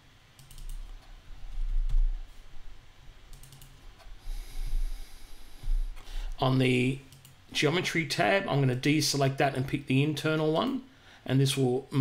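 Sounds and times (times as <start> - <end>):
typing on computer keyboard: 0.4 - 0.9, 3.3 - 3.8.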